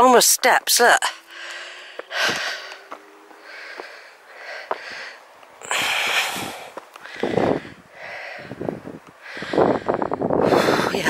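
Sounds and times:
person breathing: 1.1 - 11.0
faint footsteps on rock: 1.9 - 4.0, 4.6 - 4.8.

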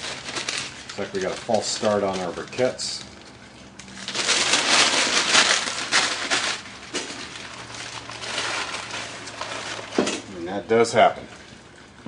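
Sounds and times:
paper crackling and rustling: 0.0 - 10.5.

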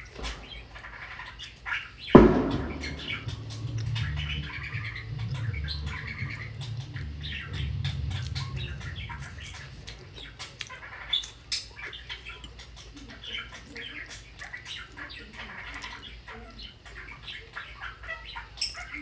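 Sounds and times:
bird chirping and squawking: 0.2 - 19.0
low rumble: 2.2 - 10.4.

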